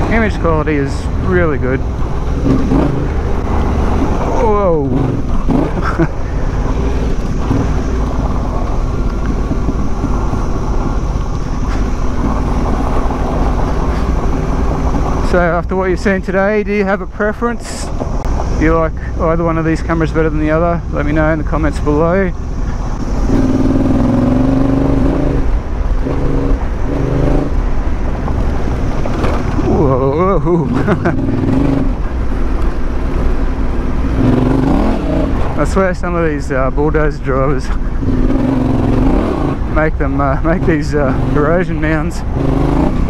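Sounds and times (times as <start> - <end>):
motorcycle engine rumble: 0.0 - 43.0
wind noise on microphone: 1.8 - 15.2.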